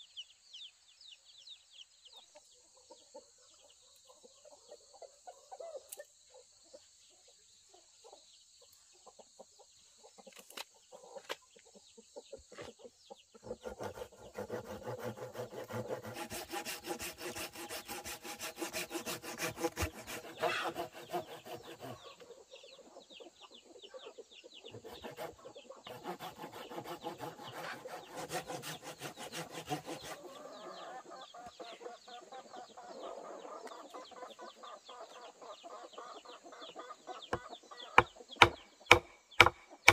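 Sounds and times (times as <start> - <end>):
chickens clucking: 2.1 - 16.3, 18.8 - 28.1, 29.2 - 39.9
hand saw cutting wood: 13.4 - 22.2, 24.7 - 30.4, 38.0 - 39.9.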